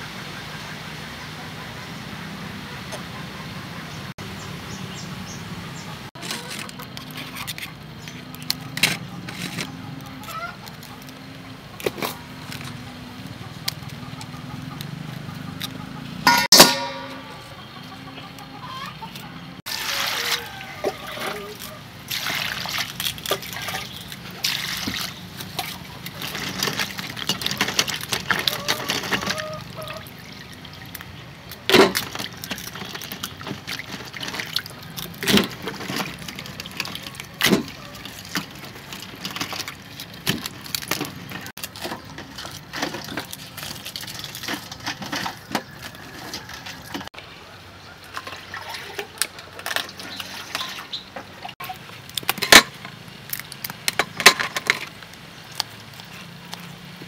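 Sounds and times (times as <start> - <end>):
water splashing into a metal bowl: 19.7 - 45.5, 48.1 - 51.5.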